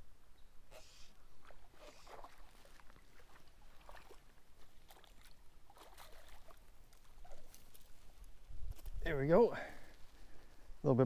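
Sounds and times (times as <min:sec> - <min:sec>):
small water splashes: 0:01.3 - 0:08.0.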